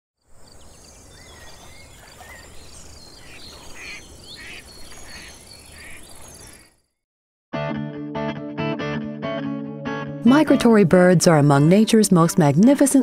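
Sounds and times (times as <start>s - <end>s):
birds whistling and chirping: 0.6s - 6.7s.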